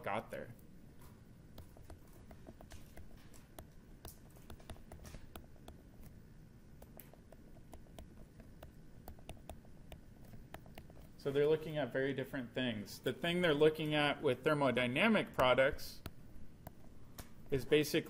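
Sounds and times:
stylus clicking and scratching: 0:00.5 - 0:11.7, 0:15.3 - 0:17.8.

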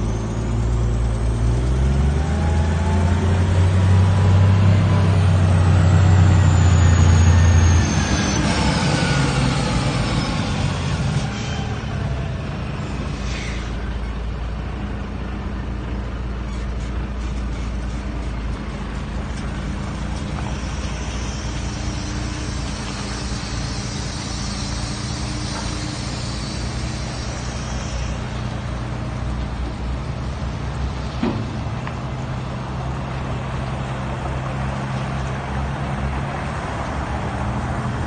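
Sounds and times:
truck diesel engine humming: 0:00.0 - 0:38.0
high hiss: 0:20.4 - 0:28.7.

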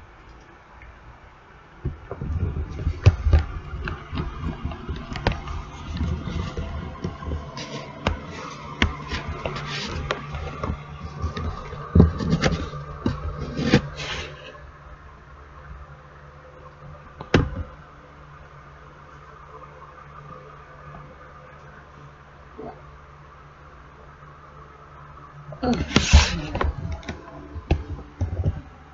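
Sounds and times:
faint low hum: 0:00.0 - 0:28.9
clicks knocks and scraping: 0:01.9 - 0:14.6.

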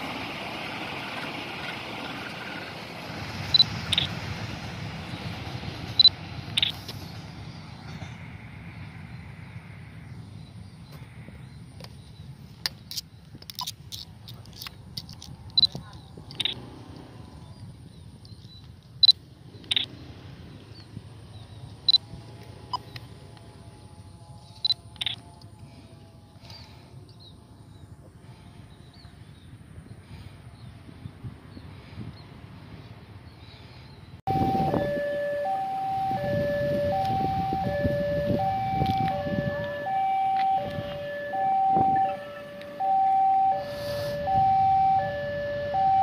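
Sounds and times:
distant train rumble: 0:00.0 - 0:46.0
level crossing two-tone alarm: 0:34.3 - 0:46.0.

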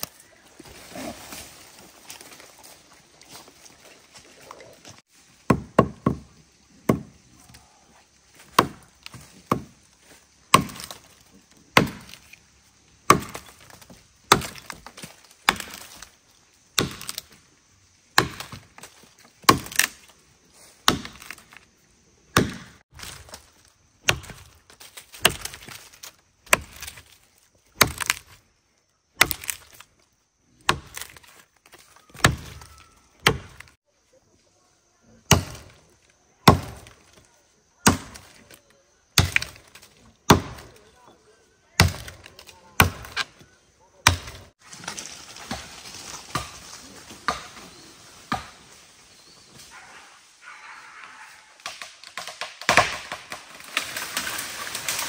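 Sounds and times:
blade chopping wood: 0:05.5 - 0:07.2, 0:08.4 - 0:09.8, 0:10.5 - 0:12.4, 0:13.0 - 0:16.1, 0:16.8 - 0:17.4, 0:18.1 - 0:20.1, 0:20.8 - 0:21.6, 0:22.3 - 0:27.2, 0:27.8 - 0:28.4, 0:29.2 - 0:29.9, 0:30.6 - 0:33.8, 0:35.3 - 0:35.8, 0:36.4 - 0:37.2, 0:37.8 - 0:38.5, 0:39.1 - 0:40.9, 0:41.8 - 0:43.4, 0:44.0 - 0:44.5, 0:51.6 - 0:55.0.

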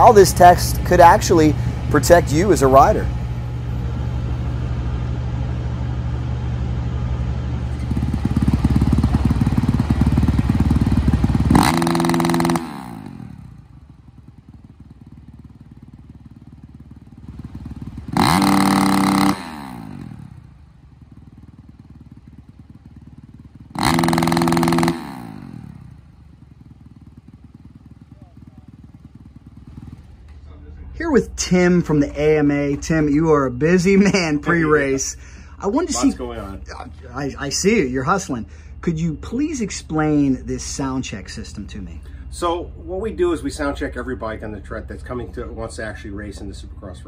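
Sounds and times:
dirt bike engine running: 0:00.0 - 0:47.0
sharp engine revs: 0:07.7 - 0:13.7, 0:17.3 - 0:20.5, 0:23.7 - 0:26.0.

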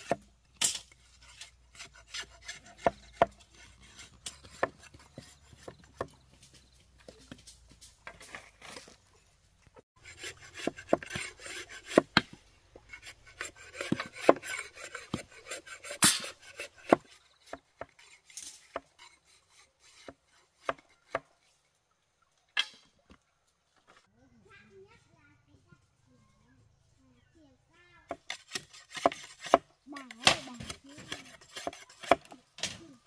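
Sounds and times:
blade chopping bamboo: 0:00.0 - 0:06.6, 0:10.0 - 0:18.0, 0:28.1 - 0:32.8
blade scraping bamboo: 0:00.0 - 0:09.2, 0:10.0 - 0:21.7, 0:28.1 - 0:32.8.

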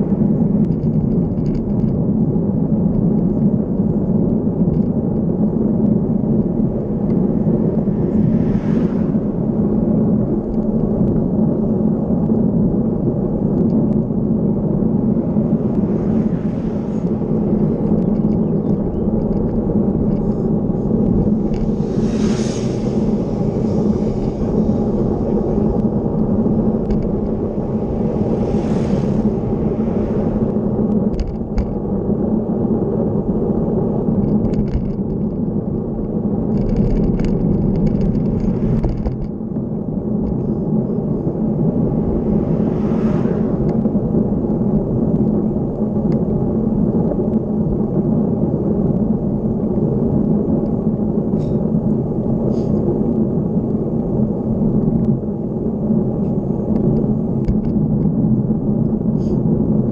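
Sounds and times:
wind and road noise: 0:00.0 - 0:59.9
car whooshing past: 0:06.3 - 0:10.9, 0:14.0 - 0:31.8, 0:37.8 - 0:39.0, 0:40.4 - 0:45.6.

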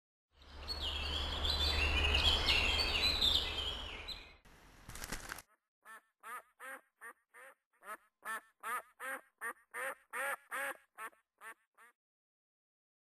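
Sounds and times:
duck quacking: 0:05.9 - 0:12.0.

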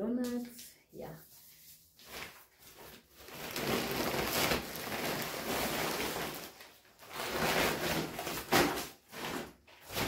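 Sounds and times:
plastic packaging rustling: 0:02.0 - 0:10.0.

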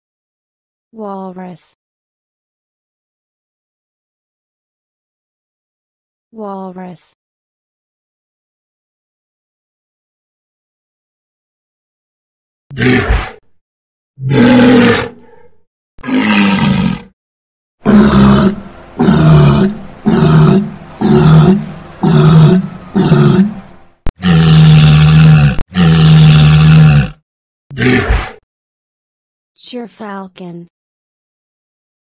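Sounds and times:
walrus calling: 0:17.8 - 0:23.6.

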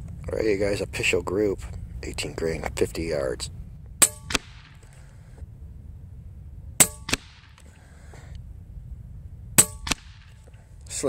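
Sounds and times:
pellet striking target: 0:04.0 - 0:04.8, 0:06.8 - 0:07.6, 0:09.6 - 0:10.4
air rifle shots: 0:04.0 - 0:05.1, 0:06.8 - 0:07.9, 0:09.6 - 0:10.6.

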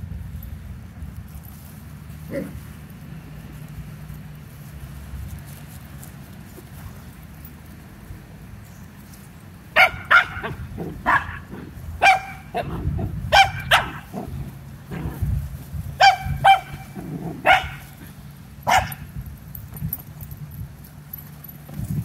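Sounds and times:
puppy yapping: 0:09.8 - 0:14.2, 0:16.0 - 0:18.0, 0:18.7 - 0:19.0.

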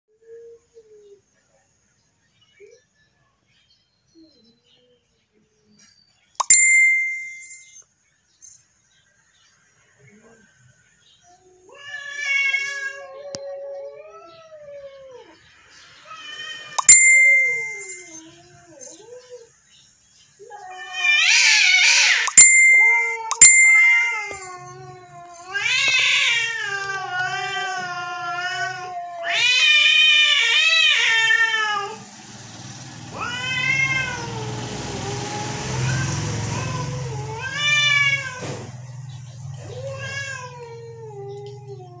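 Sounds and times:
cat meowing: 0:11.3 - 0:15.4, 0:20.5 - 0:32.0, 0:33.1 - 0:34.6, 0:35.3 - 0:38.7, 0:39.6 - 0:42.0.

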